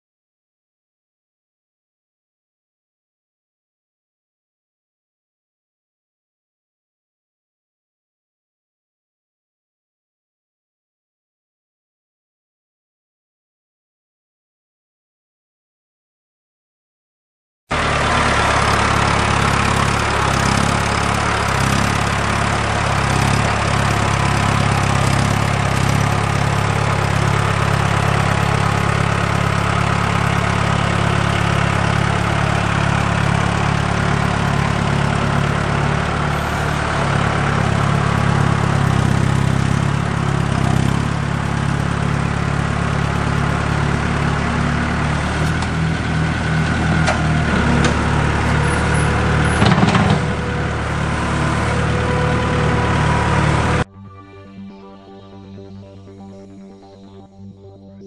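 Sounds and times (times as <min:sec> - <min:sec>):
tractor diesel engine running: 0:17.7 - 0:57.8.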